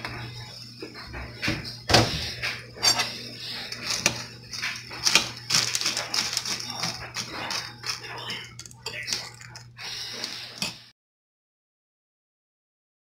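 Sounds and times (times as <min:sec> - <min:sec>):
metal spoon clinking in a bowl: 0:02.8 - 0:09.7.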